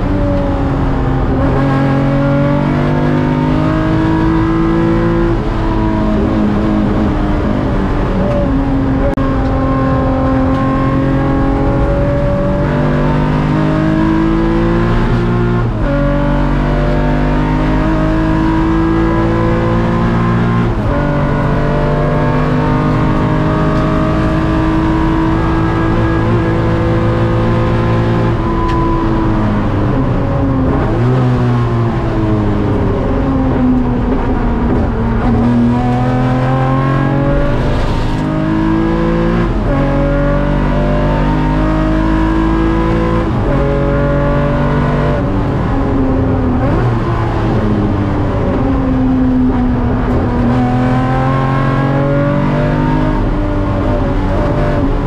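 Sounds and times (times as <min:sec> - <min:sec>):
race car engine revving: 0:00.0 - 0:55.0.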